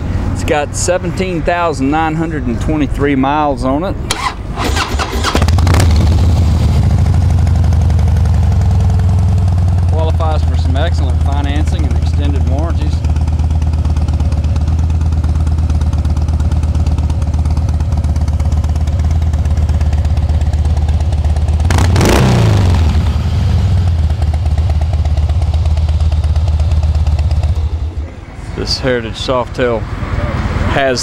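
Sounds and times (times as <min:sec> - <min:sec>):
motorcycle engine idling: 0:05.3 - 0:29.5.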